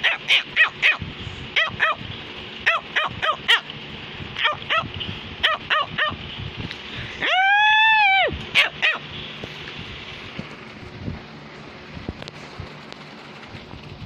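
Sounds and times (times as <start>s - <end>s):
dog barking: 0.0s - 1.0s, 1.6s - 2.0s, 4.4s - 6.2s, 8.6s - 9.1s.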